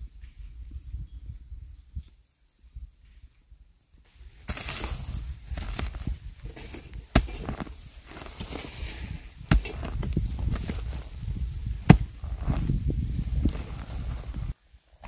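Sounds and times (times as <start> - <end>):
rustling and scraping: 4.1 - 14.6.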